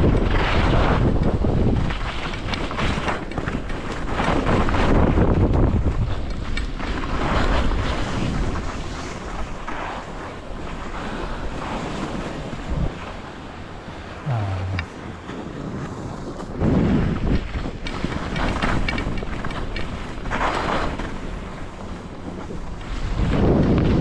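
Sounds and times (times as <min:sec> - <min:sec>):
wind buffeting microphone: 0:14.2 - 0:24.0
skis scraping over snow: 0:18.2 - 0:22.1.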